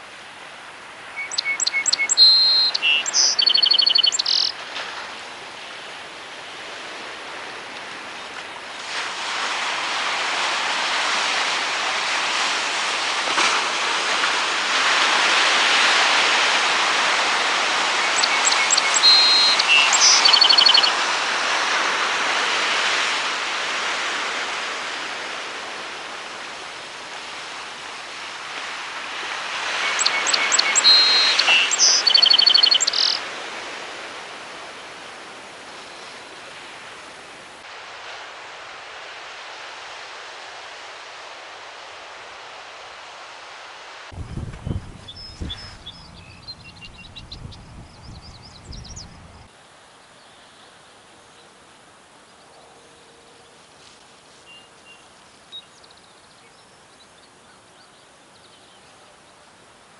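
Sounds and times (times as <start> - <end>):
sparrow singing: 1.2 - 4.5, 18.0 - 21.0, 29.9 - 33.2, 44.6 - 49.4.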